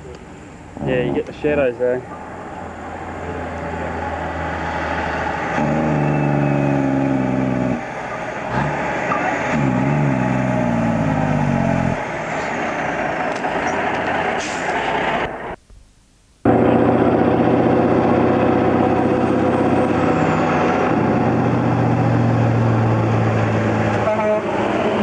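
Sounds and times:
truck diesel engine pulling hard: 0:02.4 - 0:15.6, 0:16.4 - 0:25.0.

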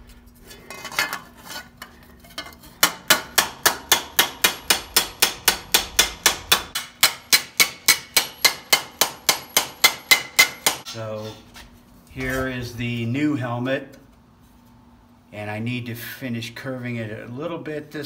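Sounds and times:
hammer striking metal: 0:02.8 - 0:10.9.

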